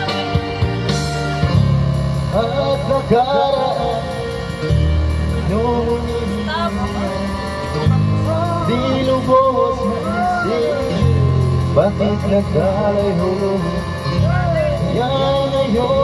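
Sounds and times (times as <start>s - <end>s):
karaoke backing track: 0.0s - 16.0s
person singing into microphone: 2.3s - 4.2s, 5.4s - 16.0s.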